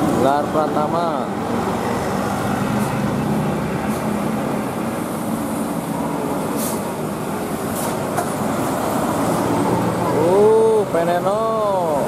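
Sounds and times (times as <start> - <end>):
diesel bus engine rumble: 0.0 - 12.0
road noise: 0.0 - 12.0
short air hisses: 6.5 - 7.0, 7.7 - 8.1.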